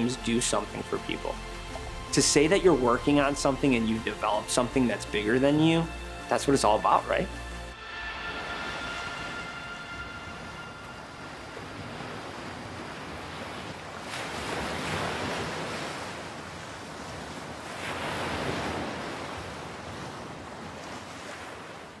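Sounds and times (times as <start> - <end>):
ocean waves washing in: 0.0 - 22.0
rush of surf: 7.8 - 22.0.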